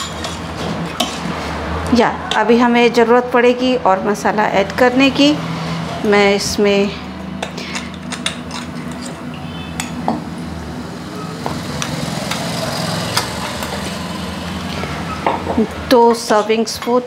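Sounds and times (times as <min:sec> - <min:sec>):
spoon clinking on metal pots: 0:00.0 - 0:01.2, 0:07.3 - 0:10.1.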